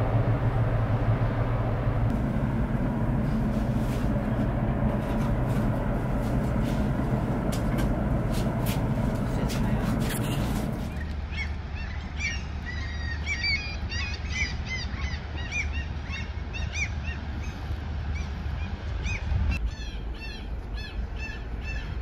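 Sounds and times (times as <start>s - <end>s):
low rumble: 0.0s - 12.7s
birds calling: 2.2s - 22.0s.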